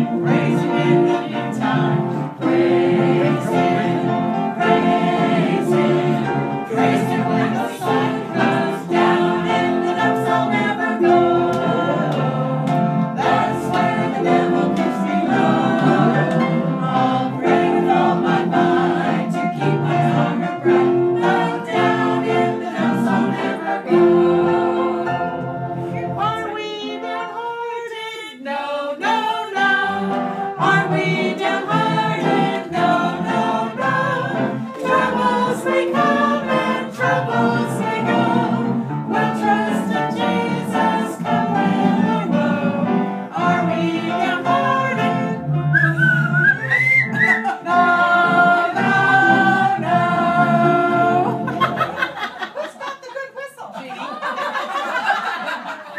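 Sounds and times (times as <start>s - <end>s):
group singing gospel chorus: 0.0s - 53.0s, 53.8s - 55.9s
piano: 0.0s - 53.0s.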